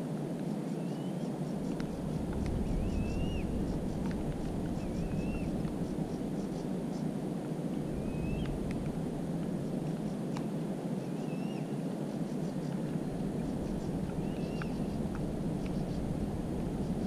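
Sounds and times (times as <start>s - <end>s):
low rushing noise: 1.3s - 17.0s
bird whistling: 2.7s - 3.6s, 4.8s - 5.6s, 8.0s - 8.6s, 11.1s - 11.7s, 14.2s - 15.0s.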